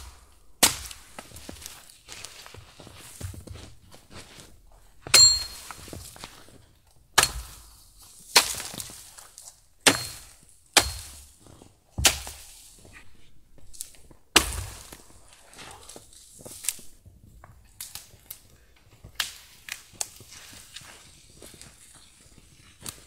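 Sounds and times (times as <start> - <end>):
blade chopping wood: 0.0 - 1.3, 7.2 - 7.7, 8.4 - 8.9, 9.8 - 11.3, 12.0 - 12.4, 14.4 - 15.0.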